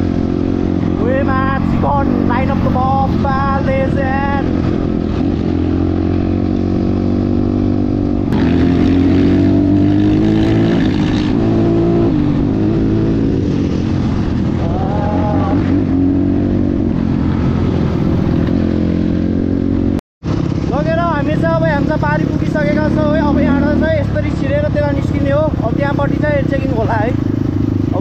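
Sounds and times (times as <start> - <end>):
motorcycle engine accelerating: 0.0 - 28.0.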